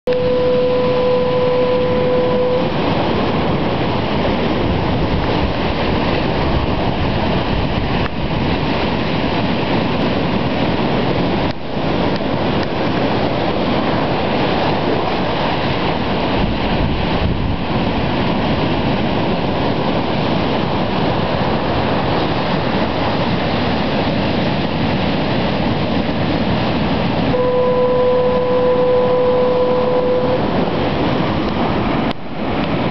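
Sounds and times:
steady low tone: 0.1s - 3.0s, 27.3s - 30.8s
ocean surf rushing: 0.1s - 32.9s.

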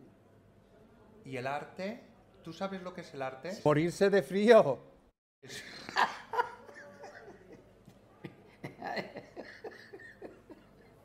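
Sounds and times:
men laughing: 5.5s - 7.6s, 8.2s - 11.0s.

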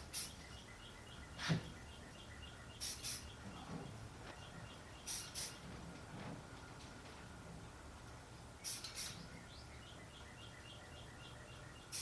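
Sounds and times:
faint high chirp: 0.1s - 5.6s, 8.6s - 12.0s
aerosol spray hissing: 2.8s - 3.3s, 5.1s - 5.6s, 8.6s - 9.2s.

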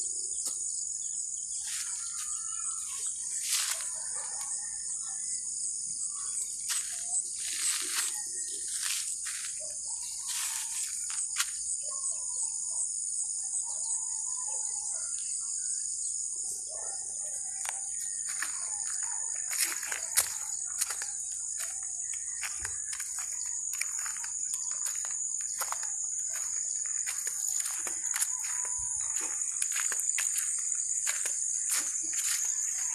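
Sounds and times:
insects chorus: 0.0s - 32.9s
footsteps on gravel: 3.4s - 4.0s, 6.7s - 11.6s, 17.6s - 32.9s
birds chirping: 16.0s - 32.9s.

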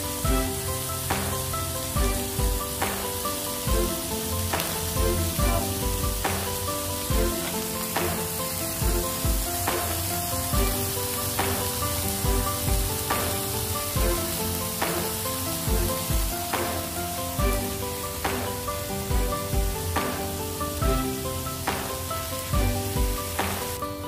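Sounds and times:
chicken skewers sizzling on grill pan: 0.0s - 23.7s
background music with steady beat: 0.0s - 24.0s.

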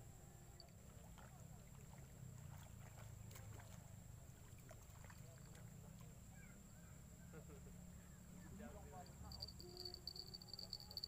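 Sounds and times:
low steady rumble: 6.7s - 11.0s.

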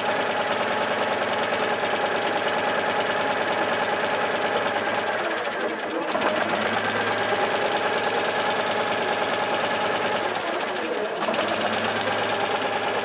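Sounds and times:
engine idling: 0.0s - 13.0s.

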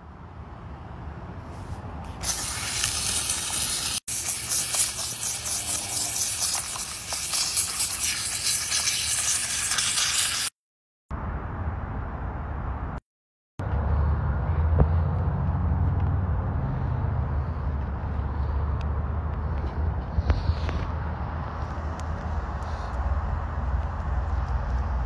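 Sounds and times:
steam cleaner hissing: 2.2s - 10.5s.

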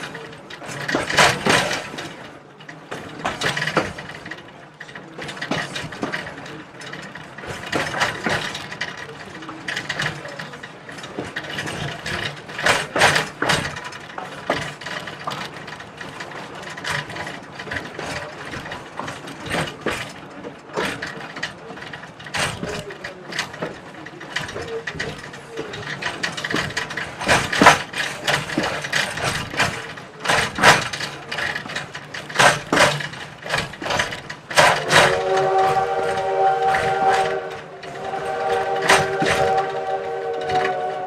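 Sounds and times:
metallic clanks and rattles: 0.0s - 41.0s
train running rumble: 0.0s - 41.0s.

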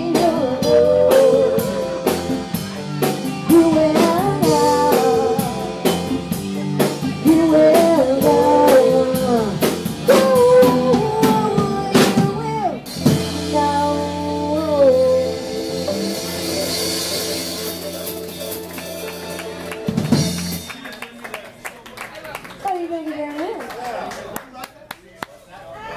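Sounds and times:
woman singing: 0.0s - 16.2s
live band playing: 0.0s - 21.6s.

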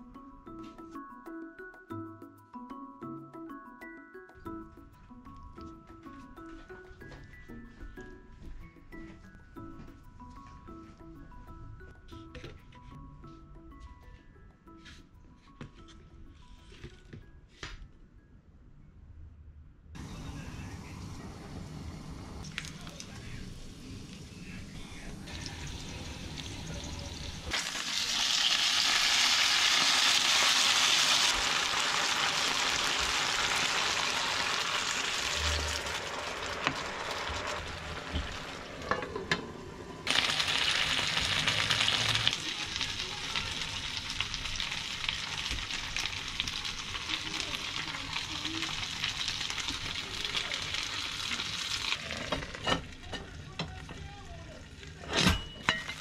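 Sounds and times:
dumplings sizzling in a frying pan: 25.3s - 38.8s, 40.0s - 53.1s.

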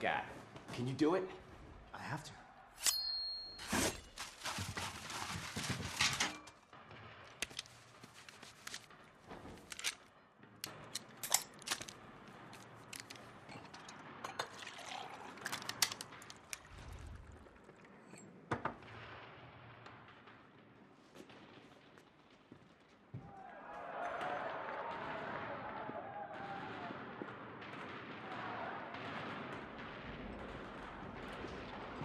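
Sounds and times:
paper rustling and crumpling: 3.6s - 6.6s, 7.4s - 10.0s
liquid pouring: 14.2s - 18.2s.

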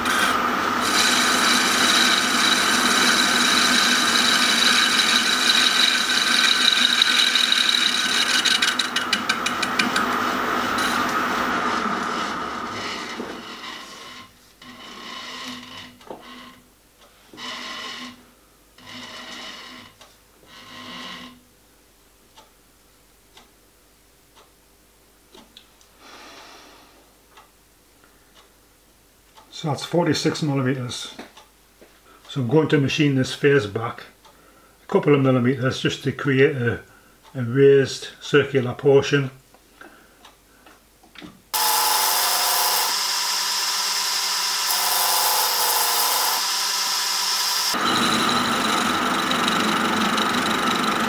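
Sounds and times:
lathe machine whine with cutting: 0.0s - 14.1s, 41.6s - 51.0s
faint clock ticking: 22.3s - 22.6s, 23.3s - 23.6s, 24.3s - 24.6s, 27.3s - 28.6s
short breathy hiss: 25.9s - 27.1s.

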